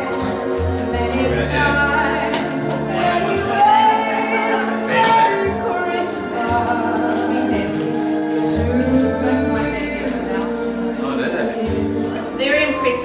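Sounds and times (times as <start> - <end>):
woman singing into a microphone: 0.0 - 10.8.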